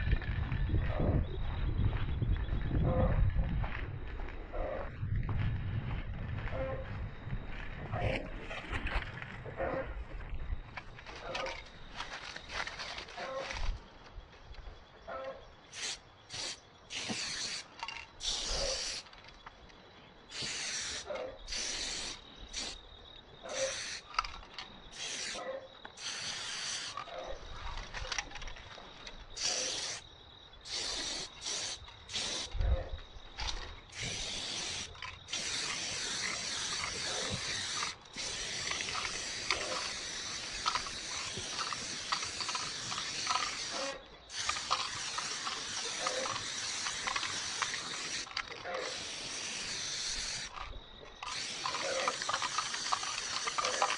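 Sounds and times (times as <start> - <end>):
spray paint can spraying: 15.7 - 19.2, 20.3 - 22.8, 23.5 - 25.4, 26.0 - 27.1, 29.4 - 30.0, 30.7 - 32.6, 33.4 - 53.9.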